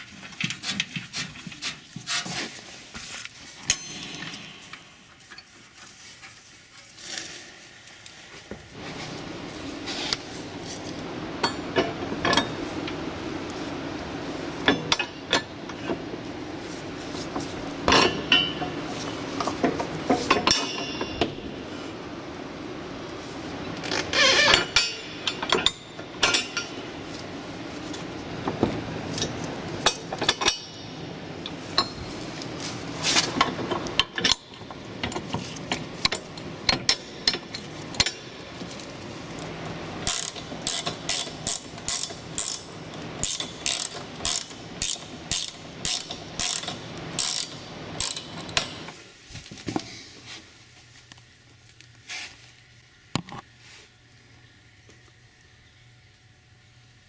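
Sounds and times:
steady low hum: 0.0 - 57.0
metallic clinks and knocks: 3.6 - 5.5, 17.9 - 18.8.

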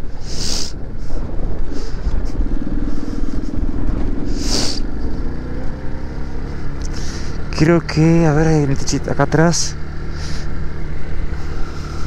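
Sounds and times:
motorcycle engine running: 0.0 - 12.0
hissing gusts: 1.6 - 7.7.

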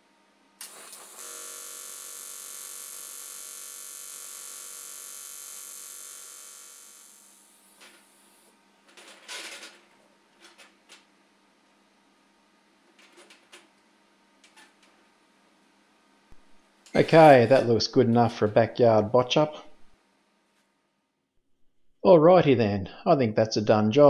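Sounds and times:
welding arc buzz: 0.6 - 8.5, 16.3 - 17.6.

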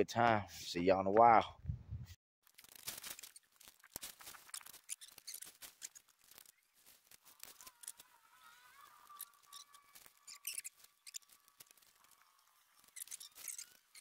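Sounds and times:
tent poles clicking: 2.5 - 14.0
tent fabric rustling: 2.6 - 14.0
thin wavering squeak: 4.4 - 6.7, 7.3 - 14.0.

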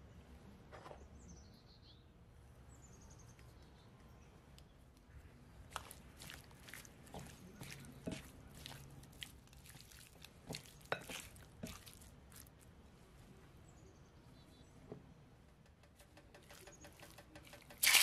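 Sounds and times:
wet squishing of raw chicken: 5.6 - 12.8, 16.9 - 18.0.

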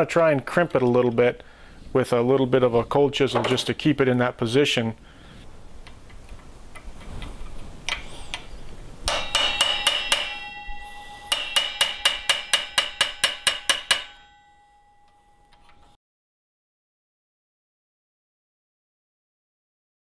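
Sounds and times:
hammer tapping metal chisel: 9.1 - 15.7.

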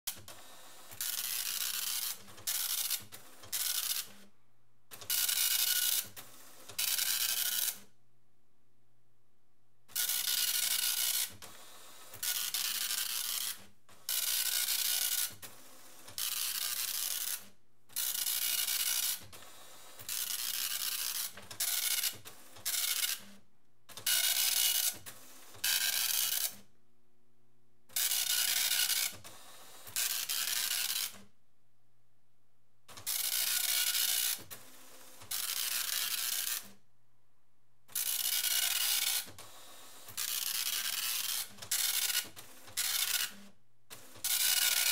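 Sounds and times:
dot matrix printer rasping: 0.2 - 4.3, 10.0 - 26.6, 27.9 - 31.3, 32.9 - 36.8, 37.9 - 44.9.

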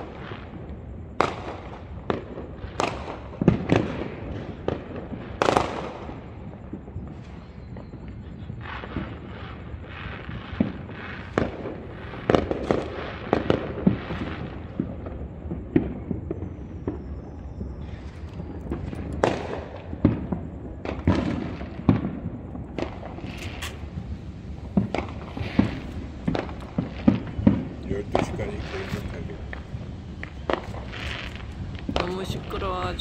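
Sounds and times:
fireworks bangs and pops: 0.0 - 33.0
fireworks crackling: 0.0 - 33.0.

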